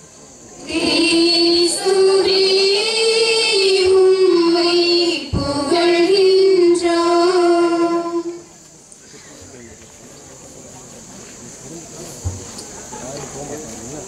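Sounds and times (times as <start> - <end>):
woman singing: 0.7 - 8.4.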